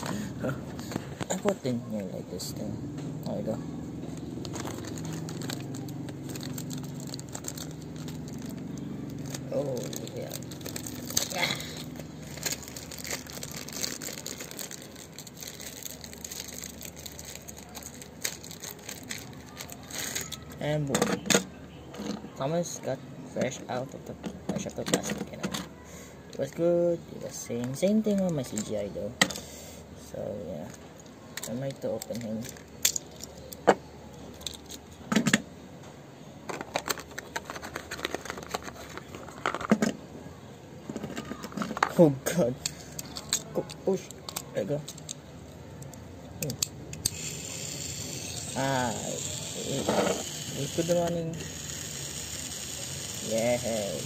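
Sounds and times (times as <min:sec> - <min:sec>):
plastic packaging crinkling: 0:04.1 - 0:20.6, 0:36.5 - 0:39.8
toy train plastic clicks: 0:45.8 - 0:54.0.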